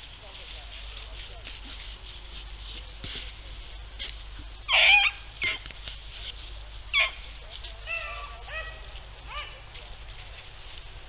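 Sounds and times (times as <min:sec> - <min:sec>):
rustling of dry brush: 0:00.0 - 0:11.0
hounds baying: 0:04.7 - 0:05.7, 0:06.9 - 0:09.8.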